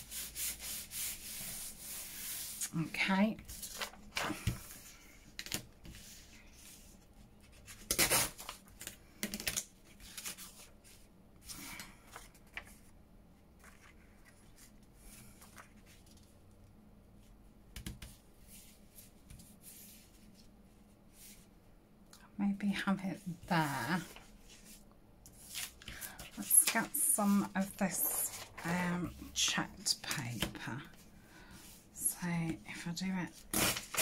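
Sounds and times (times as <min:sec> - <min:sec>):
paper rustling: 0:03.4 - 0:06.8, 0:13.6 - 0:16.4, 0:23.9 - 0:30.6.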